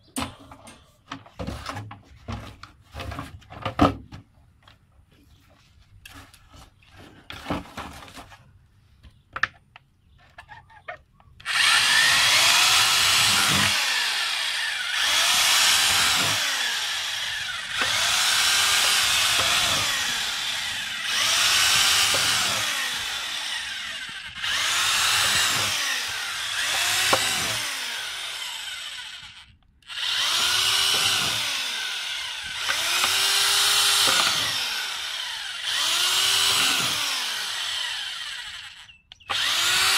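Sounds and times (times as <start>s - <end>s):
electric drill boring into plastic: 11.4s - 39.9s.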